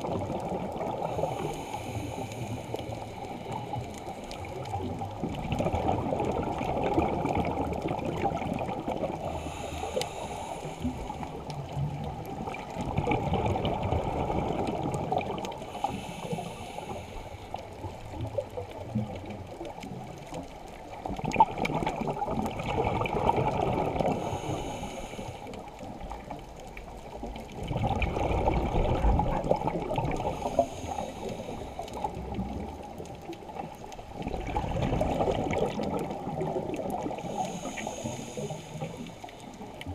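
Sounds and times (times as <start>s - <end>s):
exhaled bubbles gurgling: 0.0s - 39.9s
regulator inhalation hiss: 1.1s - 4.3s, 9.2s - 11.4s, 15.7s - 17.6s, 24.1s - 25.5s, 30.2s - 32.0s, 37.2s - 39.6s.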